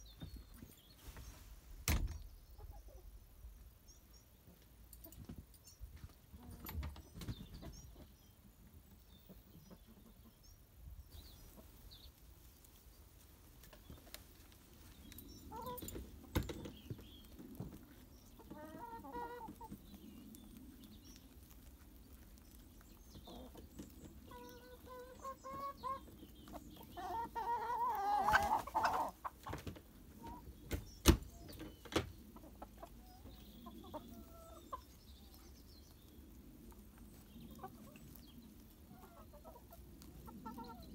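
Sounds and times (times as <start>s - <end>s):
hens clucking: 15.5s - 21.0s, 22.1s - 35.5s, 36.7s - 40.9s.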